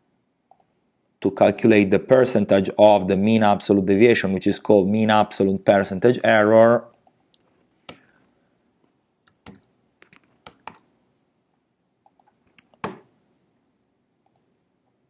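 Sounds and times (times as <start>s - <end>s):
keyboard typing: 9.3s - 10.9s, 12.0s - 13.1s, 14.2s - 14.5s.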